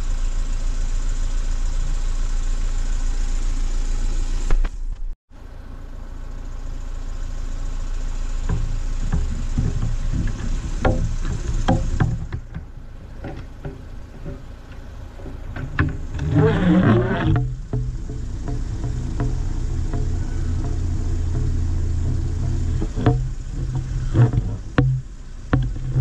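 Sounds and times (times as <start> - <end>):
car engine running: 0.0 - 26.0
road and wind noise: 1.2 - 26.0
knocks and rattles: 8.4 - 26.0.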